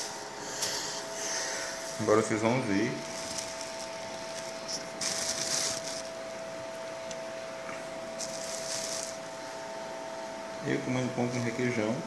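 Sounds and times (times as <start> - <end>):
steady electrical hum: 0.0 - 12.0
short rustling: 3.0 - 6.2, 8.2 - 9.3.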